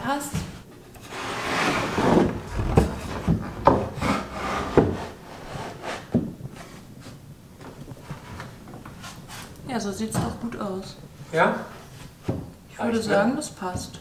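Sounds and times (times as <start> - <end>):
wooden board scraping over beams: 1.0 - 6.9
wooden board knocks: 2.1 - 4.0.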